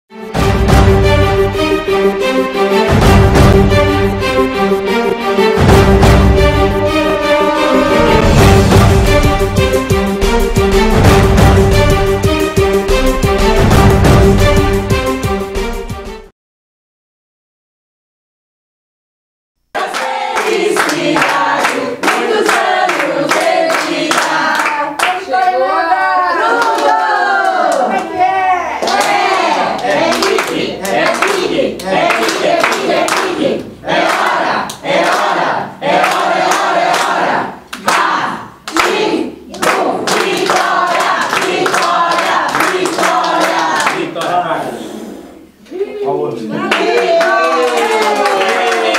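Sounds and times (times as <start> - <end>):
group singing a birthday song: 5.1 - 14.8, 19.7 - 27.9, 28.8 - 45.6
hand-clapping in time: 19.8 - 25.6, 28.8 - 44.4.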